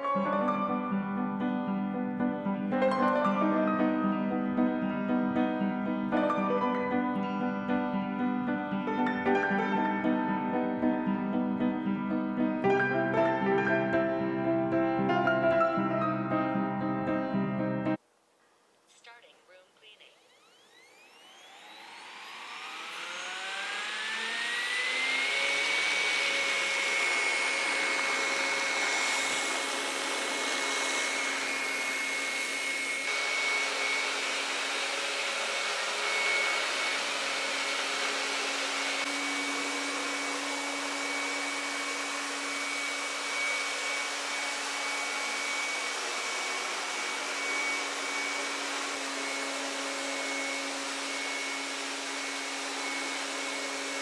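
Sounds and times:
robot vacuum fan whine: 0:19.9 - 0:54.0.

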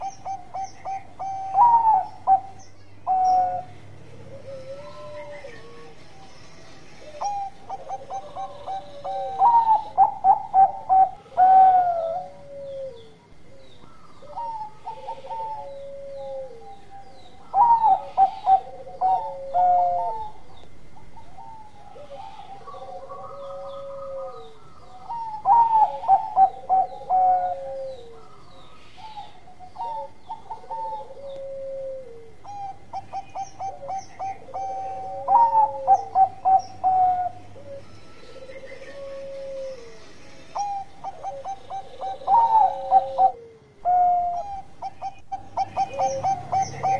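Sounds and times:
dove cooing: 0:00.0 - 0:46.9.

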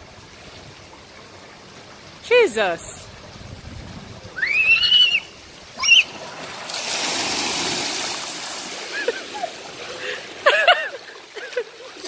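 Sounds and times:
water splash: 0:02.6 - 0:10.8
child squealing: 0:04.4 - 0:06.2.

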